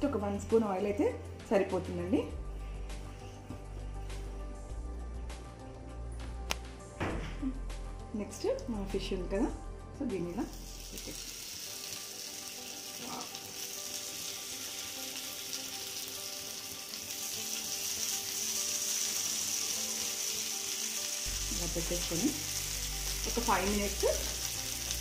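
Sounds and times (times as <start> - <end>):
fish slices sizzling in a pan: 10.5 - 25.0.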